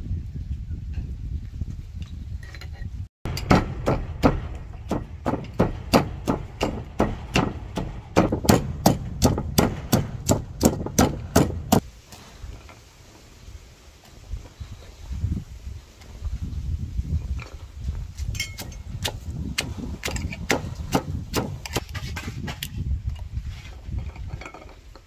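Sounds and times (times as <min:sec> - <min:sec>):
wooden pestle pounding in mortar: 0:03.3 - 0:11.8.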